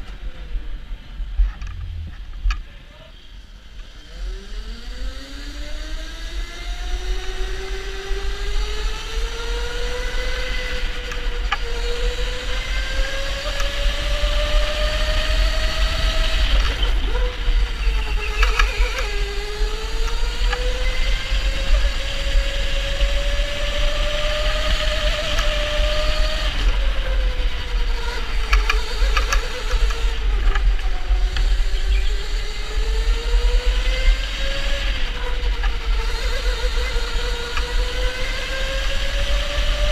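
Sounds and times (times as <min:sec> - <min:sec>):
steady low rumble: 0:00.0 - 0:03.6
electric motor whining: 0:03.8 - 0:39.9.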